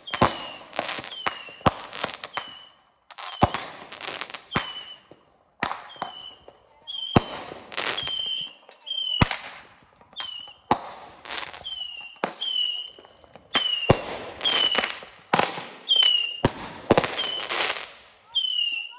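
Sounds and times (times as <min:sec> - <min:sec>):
falling firework whistle: 0:00.0 - 0:03.6, 0:04.3 - 0:05.1, 0:05.8 - 0:09.4, 0:10.1 - 0:10.7, 0:11.4 - 0:14.9, 0:15.8 - 0:18.9
fireworks bangs: 0:00.0 - 0:18.9.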